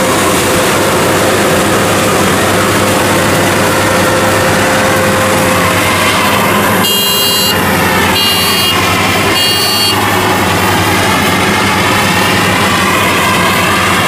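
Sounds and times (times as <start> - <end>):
harvester engine running: 0.0 - 14.0
short high-pitched beeps: 6.8 - 7.6.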